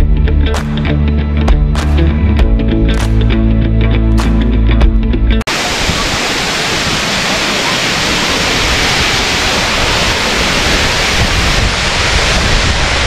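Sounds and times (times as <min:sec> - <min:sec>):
background music: 0:00.0 - 0:05.4
water cascading over dam: 0:05.5 - 0:13.0.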